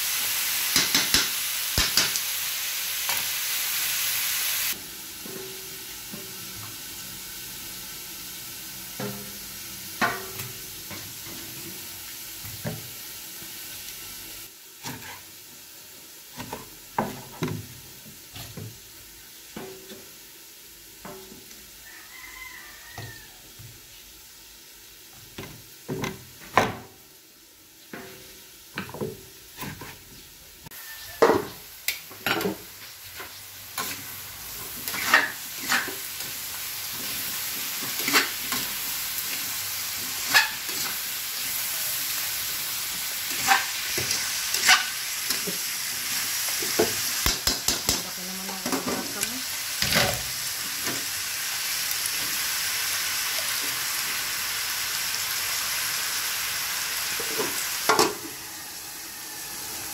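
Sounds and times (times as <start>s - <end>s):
frying sizzle: 0.0s - 59.9s
spatula scraping metal wok: 14.8s - 15.4s, 32.4s - 42.0s, 43.0s - 50.3s.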